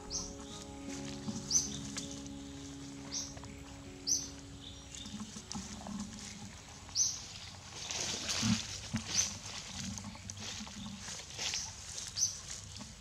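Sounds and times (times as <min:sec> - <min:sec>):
short high chirps: 0:00.0 - 0:05.8
dry leaves rustling: 0:00.0 - 0:13.0.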